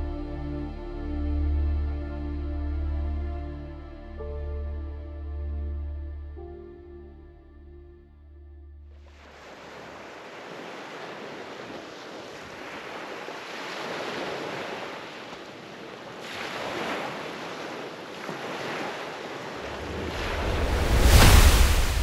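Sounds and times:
waves washing up pebbly shore: 9.2 - 22.0
low rumble: 19.6 - 22.0.

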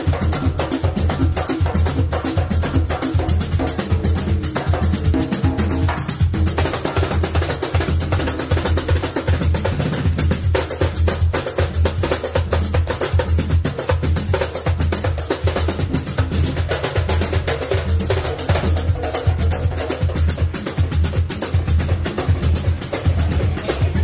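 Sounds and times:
fast drum beat: 0.0 - 24.0
strong bass: 17.2 - 24.0.

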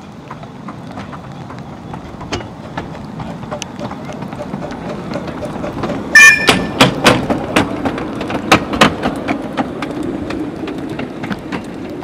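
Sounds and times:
train wheels clacking over rail joints: 0.0 - 12.0
high-pitched squeal: 6.2 - 6.8.

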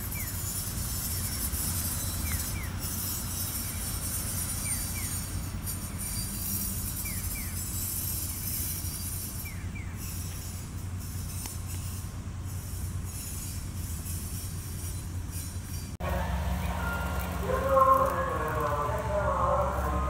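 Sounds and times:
low engine hum: 0.0 - 20.0.

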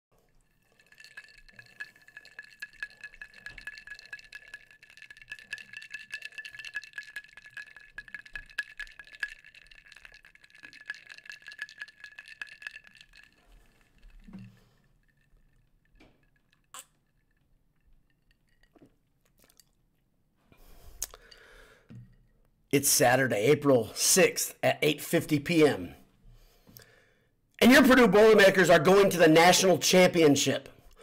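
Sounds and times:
ice cubes clinking in a glass: 0.4 - 18.8.

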